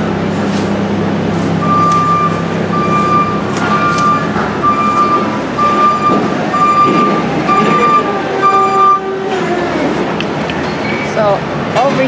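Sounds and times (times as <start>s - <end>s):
reversing alarm beeping: 1.6s - 9.2s.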